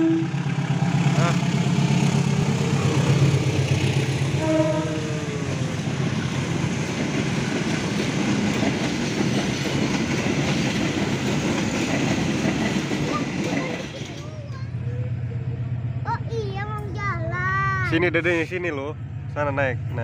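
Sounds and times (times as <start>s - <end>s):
locomotive low drone: 0.0s - 17.0s
train wheels rumbling on rails: 0.0s - 20.0s
wheels clicking over rail joints: 6.6s - 14.7s.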